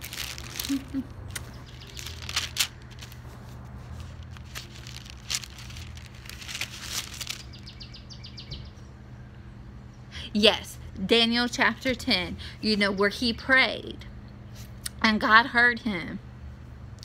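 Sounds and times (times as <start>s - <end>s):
paper pages rustling: 0.0s - 7.6s.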